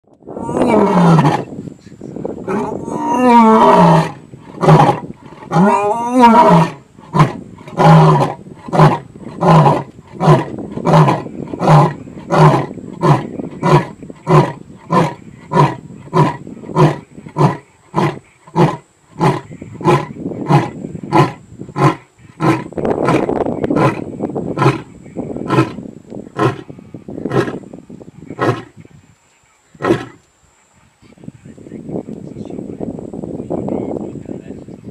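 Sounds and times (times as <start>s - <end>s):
lion roaring: 0.3s - 1.5s, 2.5s - 25.8s.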